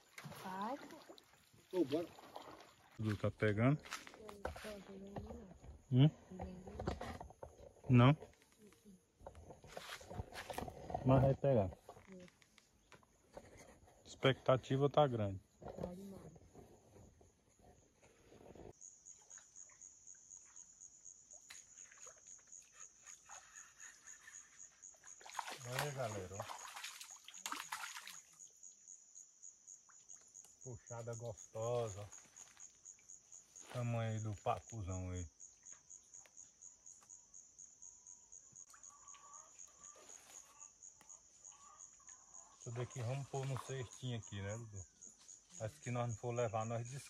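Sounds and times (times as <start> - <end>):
insect chirping trill: 18.7 - 47.0.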